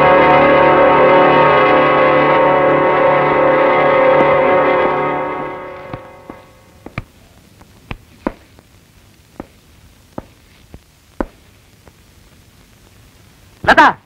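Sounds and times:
footsteps on hard floor: 5.8s - 7.1s, 9.4s - 9.6s, 10.2s - 11.4s.

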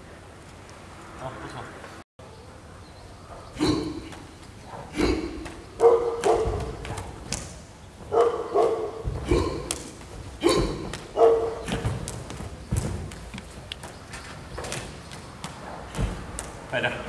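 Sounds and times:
bodies slamming with heavy thuds: 8.9s - 13.3s.

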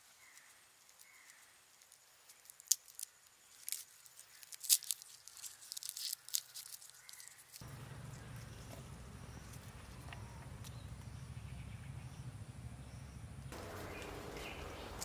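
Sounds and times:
garlic skin crackling: 0.2s - 10.8s.

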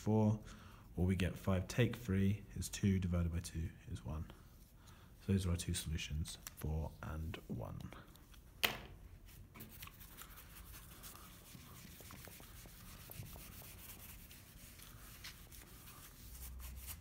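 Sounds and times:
whiteboard eraser rubbing: 9.6s - 17.0s.

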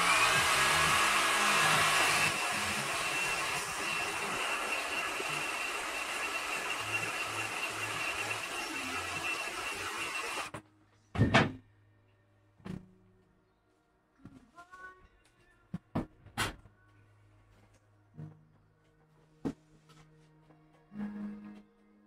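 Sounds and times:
heat gun blowing with high whine: 0.0s - 10.5s.

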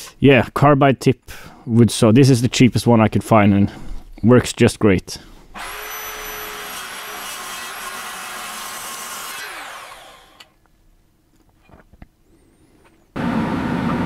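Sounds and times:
mitre saw cutting metal: 5.6s - 10.5s.

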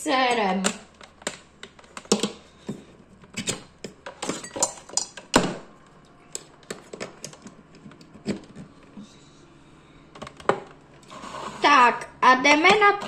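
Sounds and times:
kitchen things clicking and knocking: 0.3s - 5.5s.

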